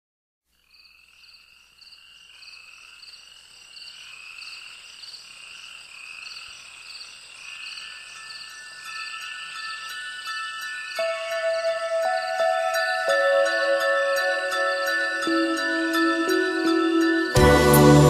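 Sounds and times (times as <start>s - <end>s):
crickets chirping: 0.5s - 17.4s
steady high drone: 11.0s - 18.0s.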